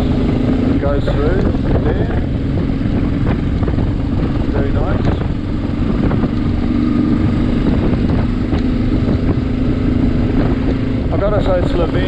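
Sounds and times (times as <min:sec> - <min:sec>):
motorcycle engine running: 0:00.0 - 0:12.0
wind rumble on microphone: 0:00.0 - 0:12.0.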